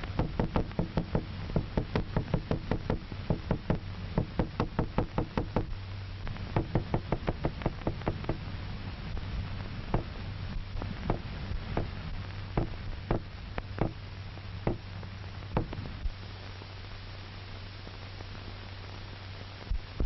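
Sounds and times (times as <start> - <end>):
hammer knocking on hard surface: 0.2 - 5.7, 6.6 - 8.4.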